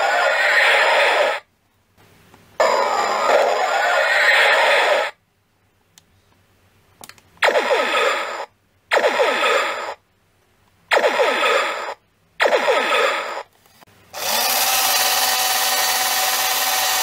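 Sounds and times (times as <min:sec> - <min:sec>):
warbling electronic effect: 0:02.6 - 0:05.2, 0:07.4 - 0:10.0, 0:10.9 - 0:13.5.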